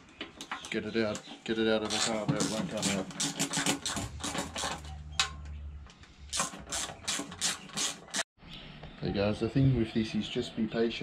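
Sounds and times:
hand ratchet clicking: 0:06.3 - 0:08.2.

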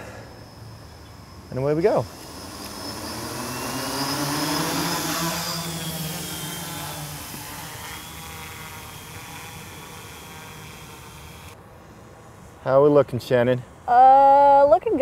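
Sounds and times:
drone propellers whirring: 0:00.0 - 0:11.6.

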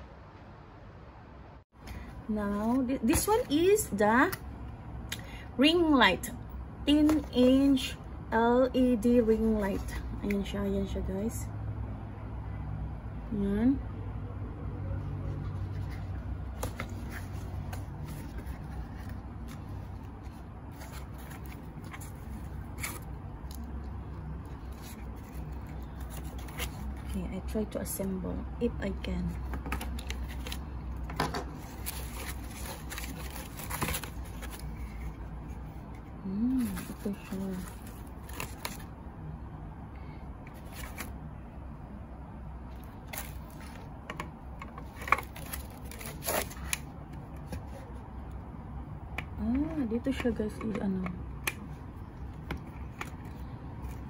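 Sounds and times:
unpacking rustling and clicks: 0:29.3 - 0:38.9, 0:42.8 - 0:47.7.

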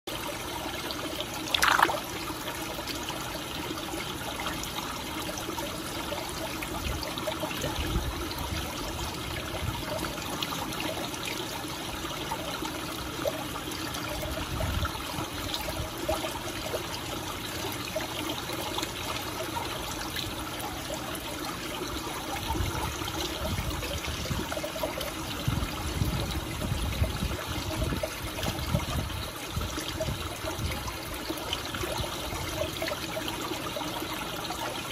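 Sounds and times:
pond water trickling: 0:00.1 - 0:34.9
fish splashing at surface: 0:01.5 - 0:02.2.

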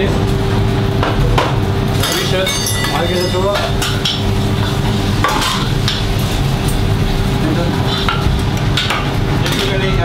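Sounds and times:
kitchen hum and hiss: 0:00.0 - 0:10.0
plates and utensils clinking: 0:01.4 - 0:06.1.

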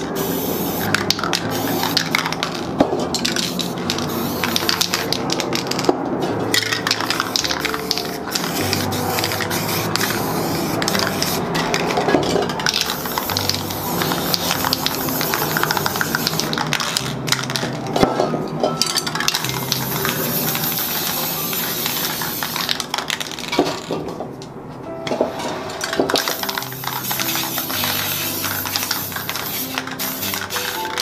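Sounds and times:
spray paint cans hissing: 0:00.0 - 0:18.0, 0:19.2 - 0:24.0, 0:25.7 - 0:31.0
clicks of cans and tools: 0:25.1 - 0:31.0.

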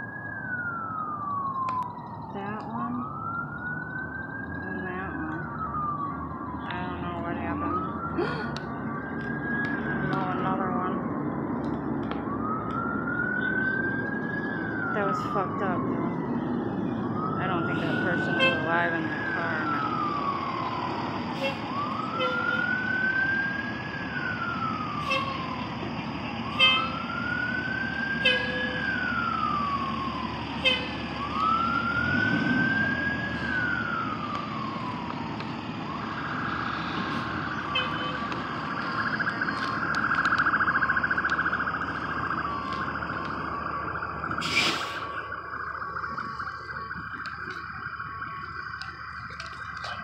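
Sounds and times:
emergency vehicle siren: 0:00.0 - 0:50.0.

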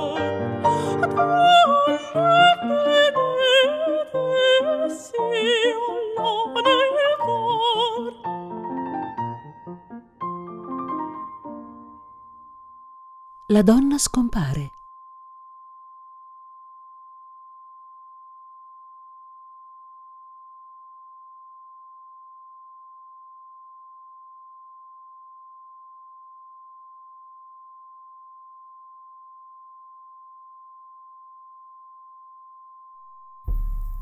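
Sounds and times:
steady electronic tone: 0:33.2 - 0:34.0.

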